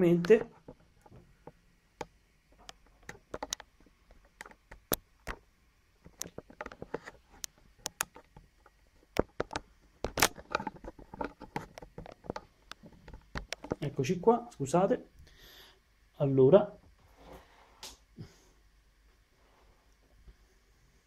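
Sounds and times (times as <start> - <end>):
camera handling clicks and knocks: 9.2 - 13.8.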